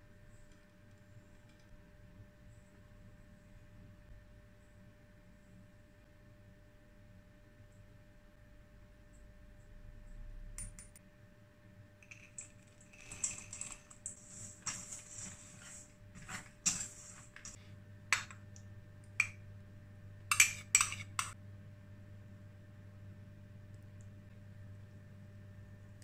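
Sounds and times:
whisk scraping in metal bowl: 13.0s - 17.6s.

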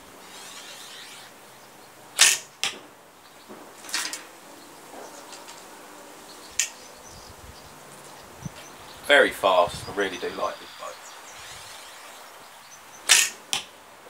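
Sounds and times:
sharp crack: 2.2s - 2.9s, 6.6s - 6.8s, 13.0s - 13.7s
bowstring snapping: 6.6s - 6.8s, 13.1s - 13.7s.

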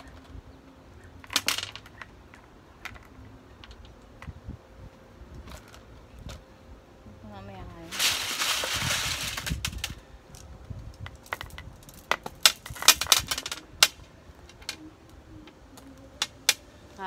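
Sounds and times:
stones and plastic pots clinking: 1.1s - 4.4s, 7.8s - 14.9s
rustling: 7.8s - 14.9s.

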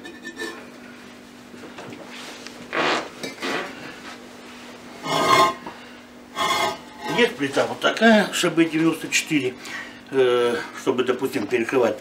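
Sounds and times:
ceramic slab scraping and clinking: 0.0s - 0.7s, 5.0s - 5.7s, 6.4s - 7.3s
faint steady hum: 0.0s - 12.0s.

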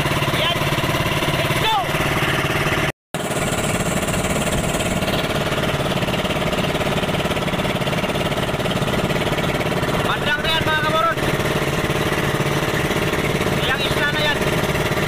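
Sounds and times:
boat engine chugging: 0.0s - 15.0s.

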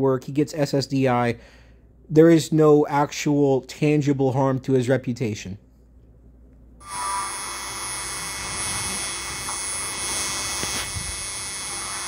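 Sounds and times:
electrical hum and buzz: 5.6s - 12.0s
thin high whine: 6.8s - 12.0s.

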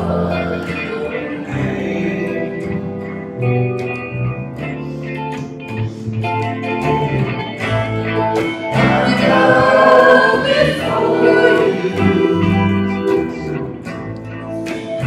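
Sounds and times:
voices singing gospel song: 0.0s - 3.5s, 8.4s - 13.8s
electric guitar playing: 0.0s - 15.0s.

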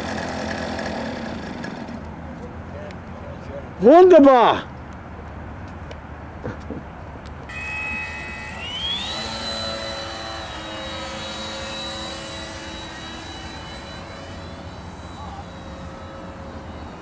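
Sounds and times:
model airplane engine whine: 7.4s - 17.0s.

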